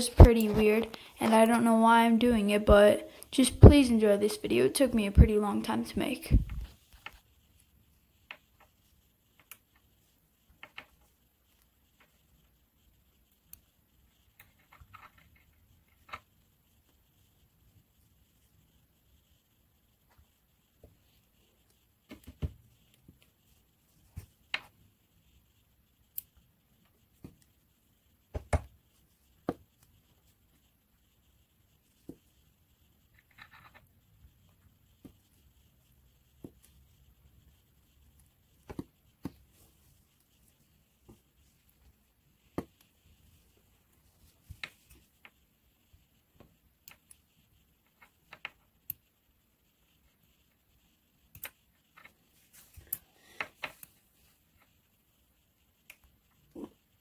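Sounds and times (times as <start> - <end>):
small clicks and taps: 9.3 - 9.9, 10.6 - 12.2, 46.4 - 49.1, 51.3 - 52.2
soft rustle: 39.0 - 46.0, 51.8 - 55.0.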